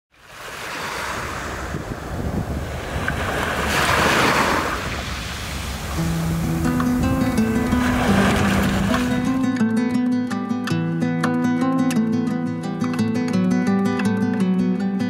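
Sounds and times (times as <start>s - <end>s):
waves washing up gravel beach: 0.2s - 9.5s
music with held notes: 6.0s - 15.0s.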